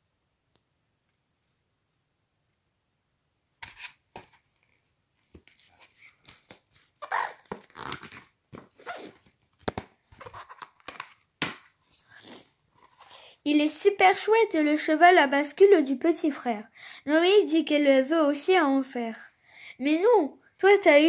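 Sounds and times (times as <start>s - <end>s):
book pages rustling: 3.6s - 13.4s.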